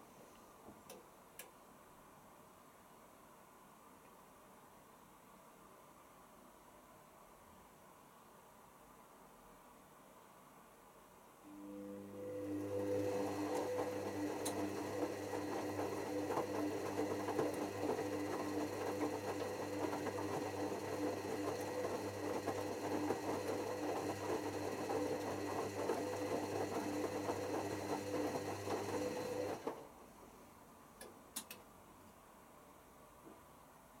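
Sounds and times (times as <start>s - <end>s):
washing machine motor humming: 11.5s - 29.9s.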